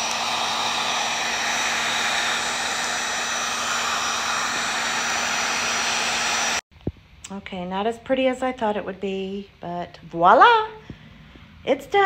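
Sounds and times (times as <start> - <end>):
heat gun blowing air: 0.0 - 6.6.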